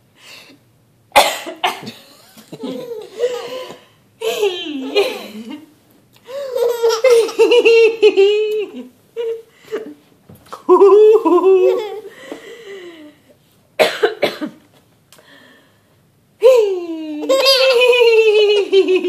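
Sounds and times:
baby laughing: 2.5s - 5.6s, 6.3s - 9.4s, 10.8s - 12.1s, 17.2s - 19.0s.

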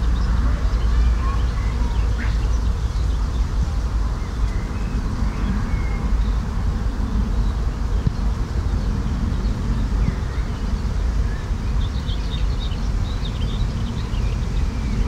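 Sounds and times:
short bird calls: 1.2s - 2.6s.

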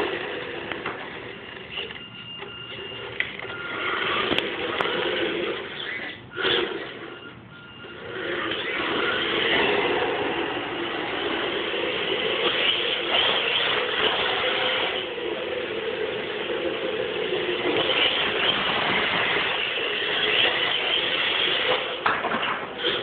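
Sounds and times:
rc car motor whining: 0.0s - 23.0s.

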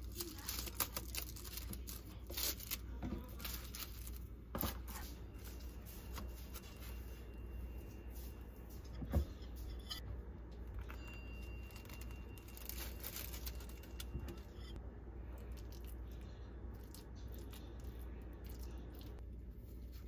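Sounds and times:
paper crinkling and rustling: 0.0s - 7.2s, 10.8s - 14.6s
steady low hum: 0.0s - 20.0s.

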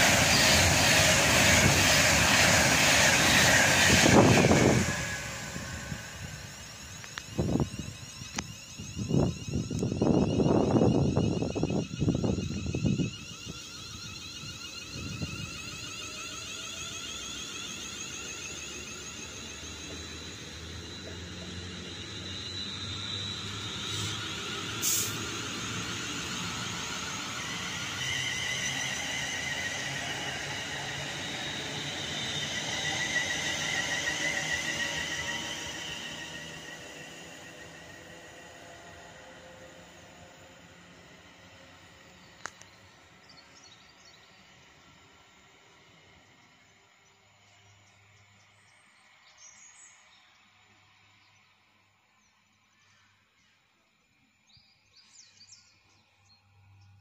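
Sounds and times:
wind buffeting microphone: 0.0s - 15.8s
electric train whine: 0.0s - 57.0s.

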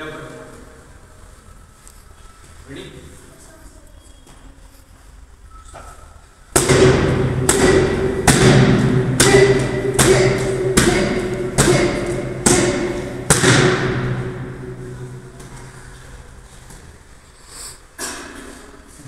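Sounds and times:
kicks smacking a kick pad: 6.6s - 14.2s.

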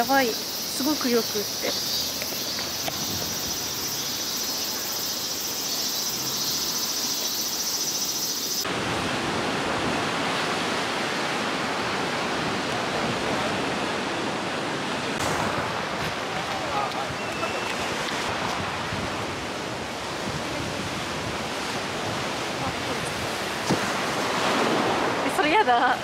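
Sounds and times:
insects droning: 0.0s - 8.7s
surf breaking on rocks: 15.2s - 26.0s.

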